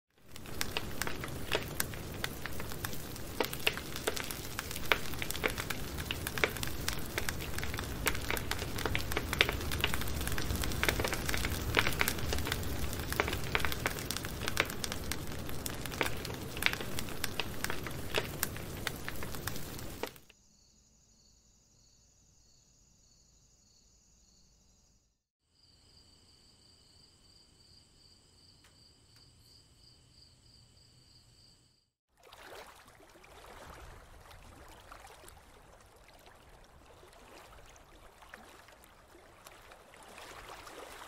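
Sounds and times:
wood fire crackling and popping: 0.2s - 20.3s.

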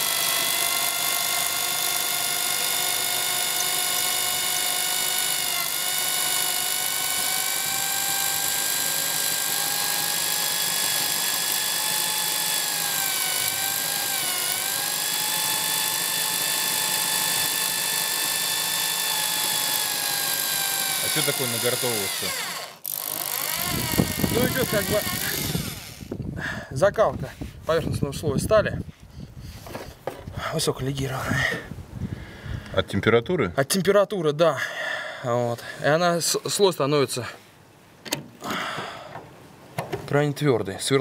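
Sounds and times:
drill motor whining: 0.0s - 26.2s.

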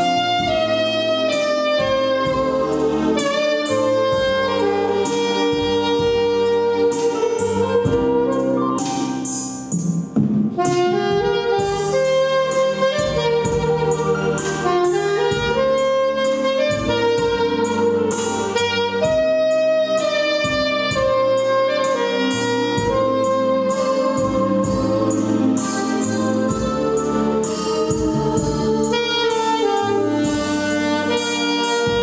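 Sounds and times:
jazz saxophone melody: 0.0s - 32.0s
steady beat: 0.0s - 32.0s.

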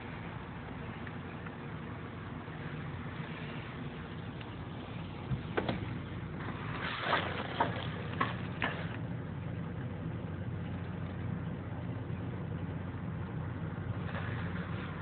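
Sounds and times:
car engine idling: 0.0s - 6.7s, 7.8s - 15.0s.

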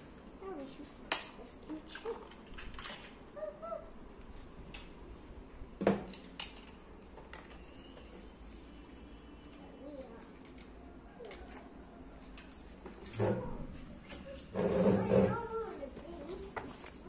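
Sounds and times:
plastic toys clicking and knocking: 1.1s - 3.3s, 5.8s - 8.1s, 9.5s - 13.2s.

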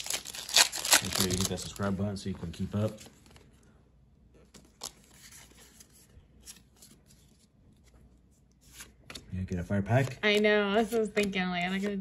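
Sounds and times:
cards and foil wrapper rustling: 0.0s - 3.6s, 9.8s - 12.0s.

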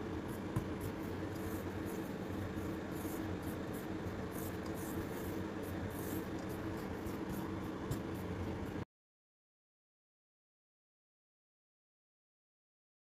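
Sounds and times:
hand rubbing starch mix in bowl: 0.0s - 8.8s
steady low hum: 0.0s - 8.8s.

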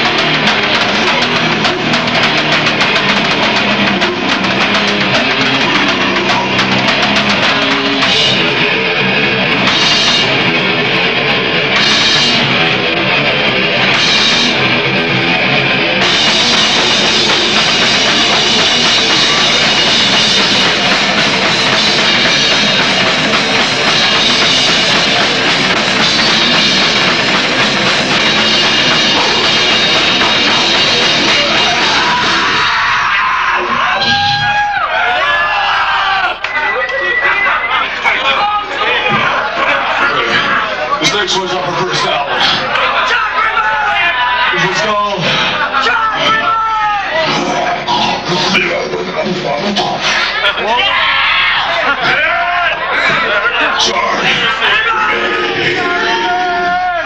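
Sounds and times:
cymbal crashes: 0.0s - 32.8s
pounding drum kit: 0.0s - 36.5s, 38.2s - 57.0s
distorted electric guitars: 0.0s - 57.0s.

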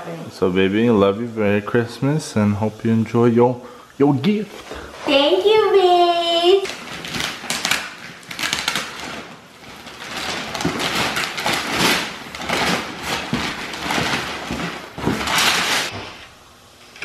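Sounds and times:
wrapping paper tearing and crinkling: 5.1s - 16.2s.

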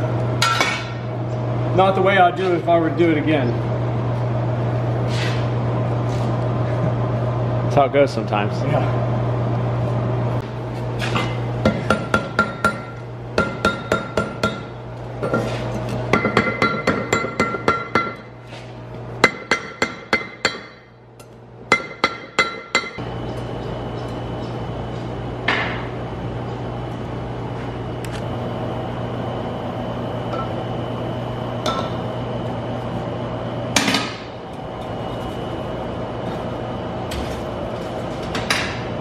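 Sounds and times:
forge blower humming: 0.0s - 39.0s
hammer ringing on steel: 21.7s - 23.0s.

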